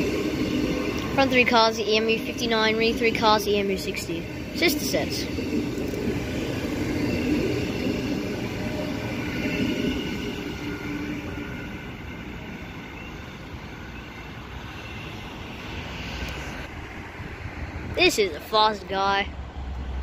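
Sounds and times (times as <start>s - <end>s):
train motor whine: 0.0s - 16.7s
electric train passing: 0.0s - 20.0s.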